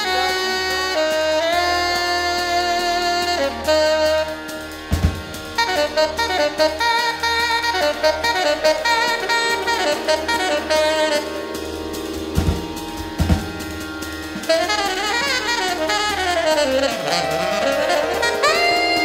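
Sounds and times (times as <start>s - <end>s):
low electronic drone: 0.0s - 19.0s
tenor saxophone playing: 0.0s - 19.0s
drum hits: 4.8s - 6.9s, 8.3s - 19.0s.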